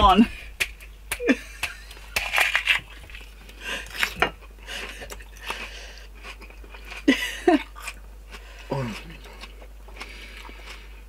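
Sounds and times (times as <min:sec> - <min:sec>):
onion being bitten and chewed: 0:05.0 - 0:11.0.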